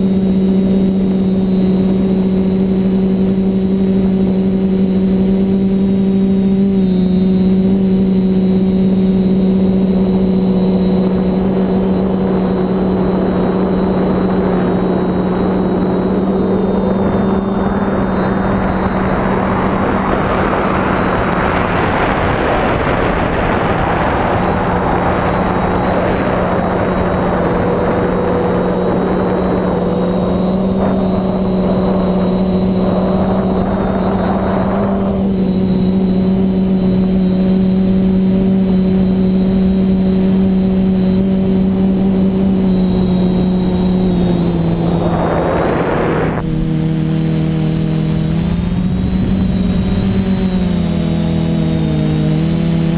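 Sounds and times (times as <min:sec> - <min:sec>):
drone motors buzzing hum: 0:00.0 - 0:52.9
rushing noise: 0:08.6 - 0:38.1, 0:38.8 - 0:51.0.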